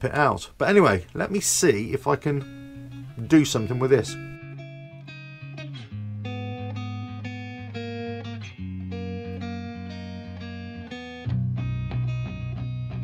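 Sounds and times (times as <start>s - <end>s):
plucked guitar music: 1.7s - 13.0s
low bass notes: 2.4s - 4.9s, 6.0s - 13.0s.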